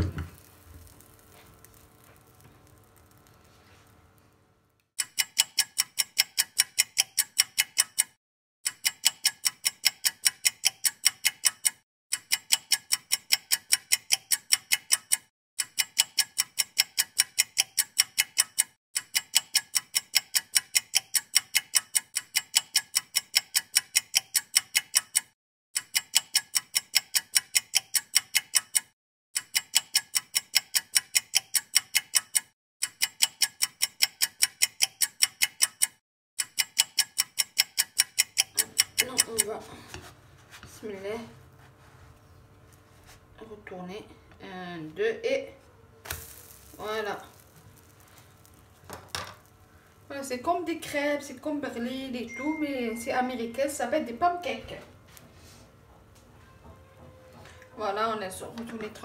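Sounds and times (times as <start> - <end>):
fast clock-like ticking: 5.0 - 39.6.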